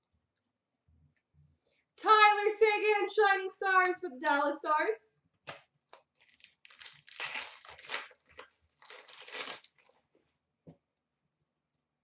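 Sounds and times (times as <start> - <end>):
wrapper tearing and crinkling: 5.9 - 10.0.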